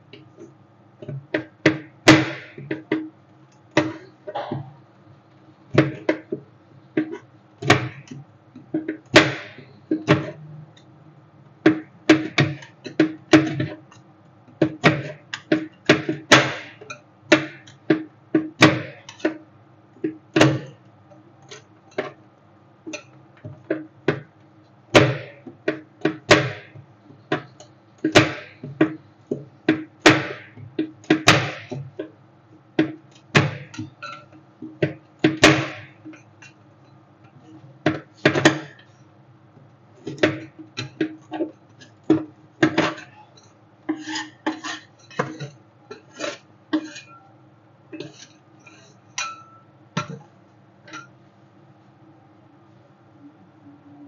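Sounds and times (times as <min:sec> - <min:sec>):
metal spatulas tapping on plate: 0:00.1 - 0:03.1, 0:05.7 - 0:06.4, 0:07.0 - 0:10.9, 0:11.6 - 0:19.4, 0:20.0 - 0:22.2, 0:22.9 - 0:32.2, 0:32.8 - 0:39.0, 0:40.0 - 0:47.3, 0:47.9 - 0:50.3, 0:50.9 - 0:51.1
spatulas scraping on plate: 0:32.8 - 0:36.6, 0:40.0 - 0:47.3, 0:47.9 - 0:50.2.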